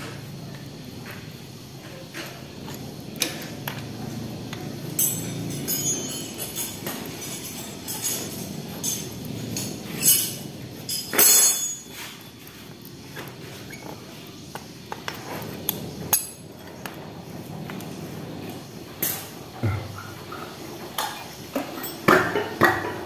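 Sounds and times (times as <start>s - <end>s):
metal scraping clatter: 1.8s - 14.1s
hand tools clinking on metal: 4.5s - 12.4s, 16.1s - 16.6s, 21.0s - 22.9s.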